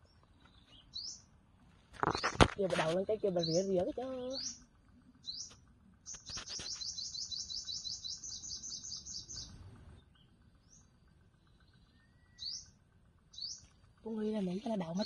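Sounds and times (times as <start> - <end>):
bird trilling chirps: 0.0 - 1.3, 3.0 - 15.0.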